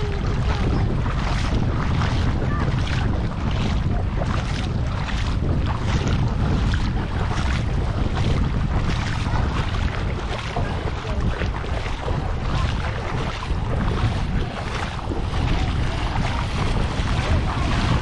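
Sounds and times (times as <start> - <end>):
shallow seawater washing: 0.0 - 18.0
wind buffeting microphone: 0.0 - 18.0.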